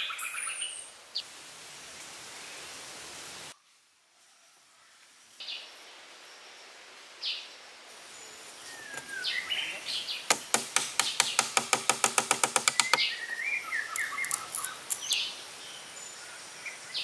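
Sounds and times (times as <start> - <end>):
small birds chirping: 7.2 - 17.0
stick knocking wooden peg: 10.3 - 13.0.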